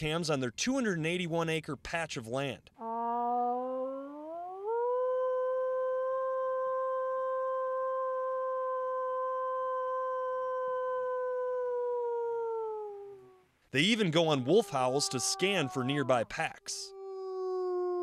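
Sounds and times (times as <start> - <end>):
woman imitating wolf howl: 2.8 - 13.5, 14.4 - 16.3, 16.9 - 18.0.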